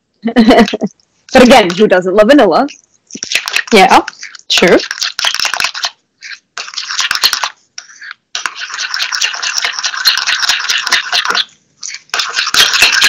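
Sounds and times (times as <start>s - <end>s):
whisk scraping a bowl: 3.0s - 13.0s.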